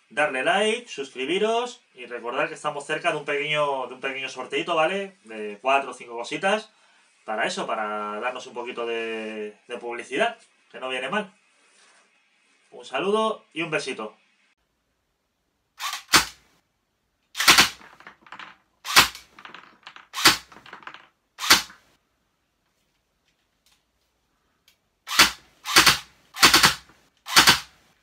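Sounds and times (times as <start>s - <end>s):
airsoft pistol shots: 15.8s - 16.4s, 17.4s - 21.8s, 25.1s - 27.8s.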